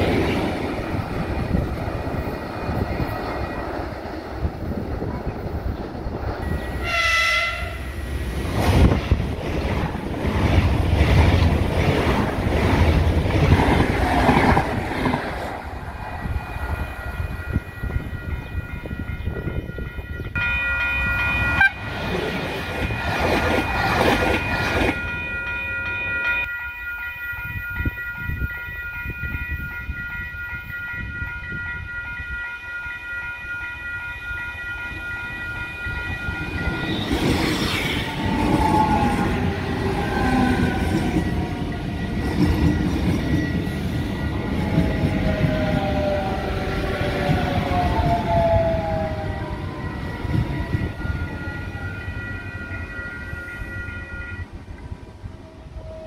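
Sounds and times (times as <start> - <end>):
train wheels rumbling and clattering: 0.0 - 6.9, 7.9 - 26.5, 35.9 - 52.2
high multi-tone whine: 0.0 - 8.3.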